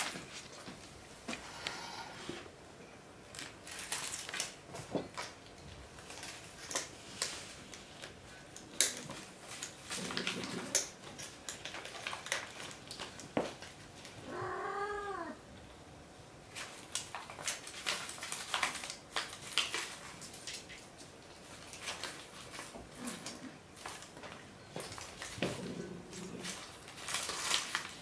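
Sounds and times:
paws and claws on tiled floor: 0:00.0 - 0:02.5, 0:03.3 - 0:15.1, 0:16.4 - 0:28.0
kitten meowing: 0:14.3 - 0:15.4.

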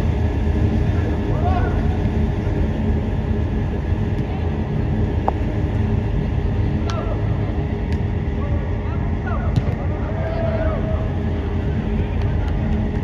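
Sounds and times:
blower low rumble and hum: 0:00.0 - 0:13.0.

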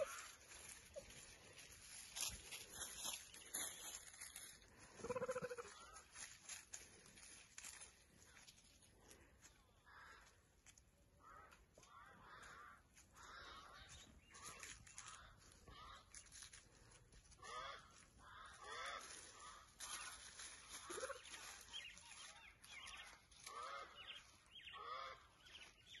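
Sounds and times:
cheetahs chirping: 0:00.0 - 0:01.2
dry leaves crackling underfoot: 0:00.0 - 0:26.0.

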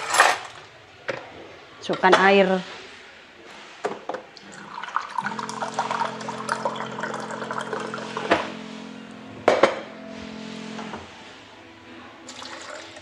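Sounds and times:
water running into a jar: 0:04.4 - 0:08.3, 0:12.3 - 0:13.0.

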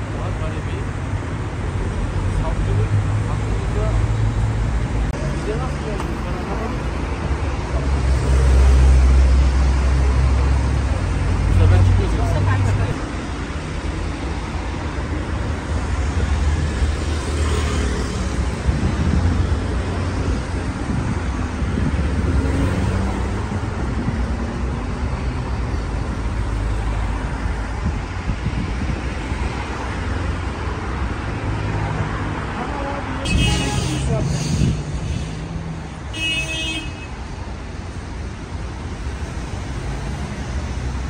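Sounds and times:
traffic rumble of passing cars: 0:00.0 - 0:41.0.

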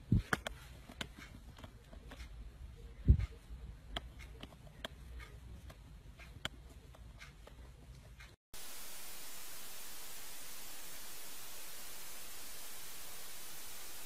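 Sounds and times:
faint irregular clicks: 0:00.2 - 0:08.4
static hiss: 0:08.6 - 0:14.0.

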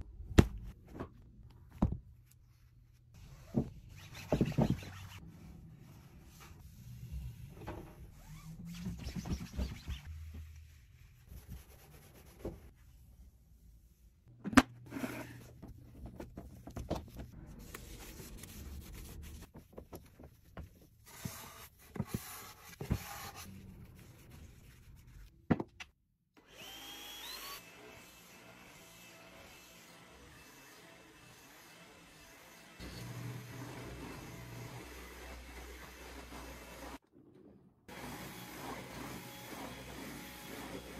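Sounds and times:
vacuum cleaner motor whining: 0:26.4 - 0:29.3, 0:32.8 - 0:37.0, 0:37.9 - 0:40.9.

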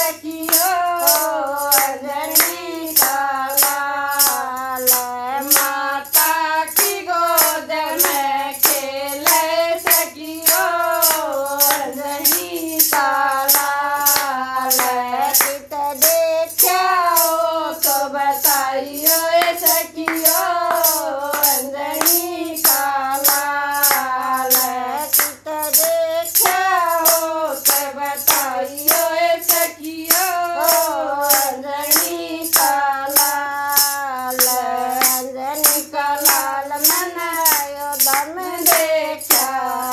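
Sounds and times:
women singing folk song: 0:00.0 - 0:39.9
wooden clapper with jingles: 0:00.0 - 0:39.9.

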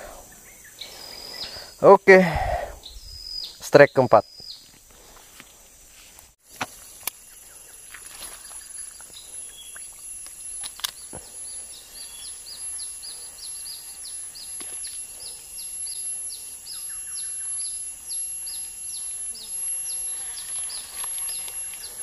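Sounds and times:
very high-pitched tone: 0:08.0 - 0:22.0.

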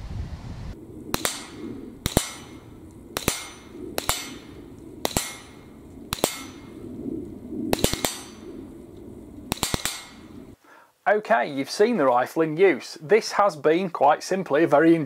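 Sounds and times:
steel target clanging: 0:01.1 - 0:02.6, 0:03.2 - 0:06.8, 0:07.8 - 0:08.4, 0:09.5 - 0:10.4
rifle gunshots: 0:07.7 - 0:08.4, 0:09.5 - 0:10.4.

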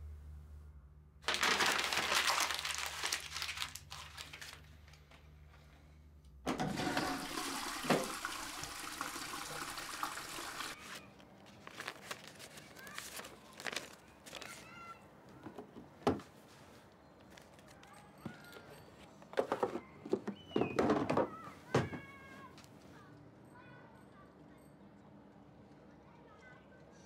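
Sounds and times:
toilet flushing: 0:06.5 - 0:10.8.

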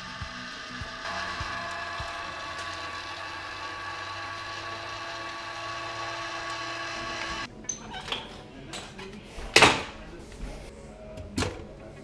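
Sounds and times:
rotisserie motor humming: 0:00.0 - 0:07.5.

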